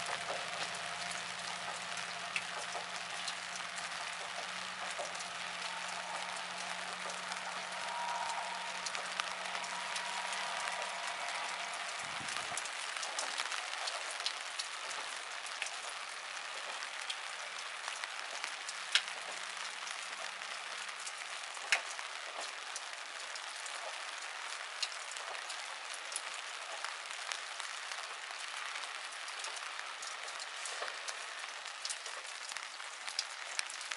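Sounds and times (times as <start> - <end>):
close drips: 0.0 - 23.5
steady rain hissing: 0.0 - 33.9.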